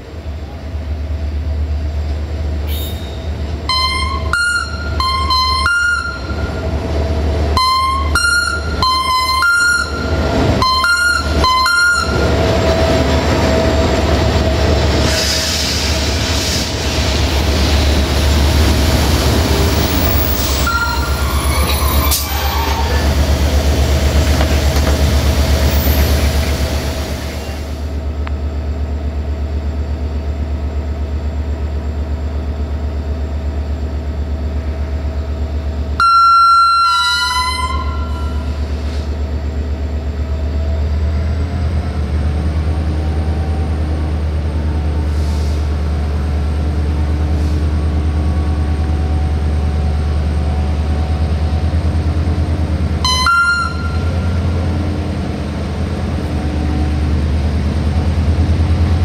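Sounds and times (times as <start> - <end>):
diesel locomotive engine droning: 0.0 - 59.0
locomotive horn blast: 2.6 - 6.7, 7.5 - 12.4, 20.3 - 23.3, 36.0 - 39.0, 53.0 - 54.8.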